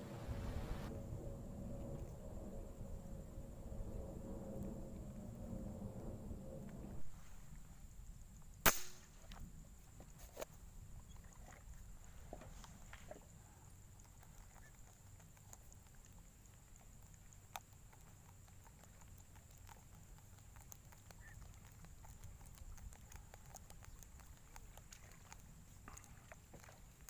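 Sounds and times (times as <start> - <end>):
faint low rumble: 0.0 - 27.0
faint ticks: 12.3 - 27.0.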